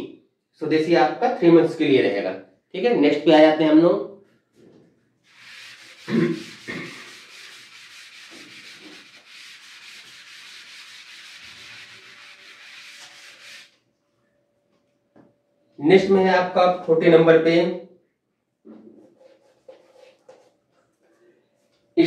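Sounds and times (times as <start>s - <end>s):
dry rubbing noise: 5.2s - 13.8s, 18.7s - 21.1s.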